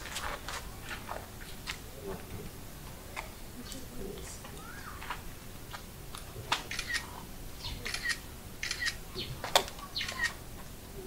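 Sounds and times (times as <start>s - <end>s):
bird chirping calls: 4.5s - 5.1s, 6.7s - 10.4s.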